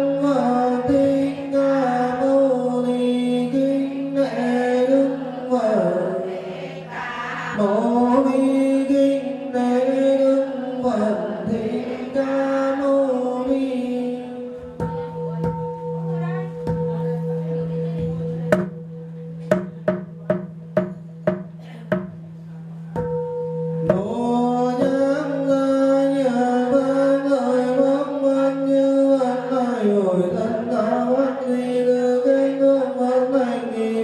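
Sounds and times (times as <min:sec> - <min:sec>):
group chanting: 0:03.8 - 0:13.7, 0:27.1 - 0:34.0
sharp percussion strikes: 0:14.6 - 0:26.3.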